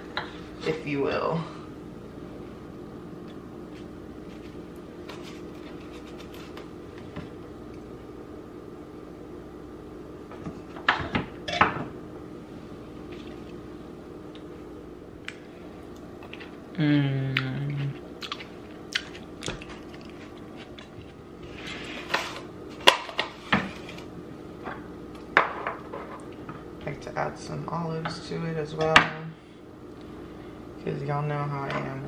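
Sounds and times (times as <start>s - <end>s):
person humming mmm: 16.7s - 18.0s.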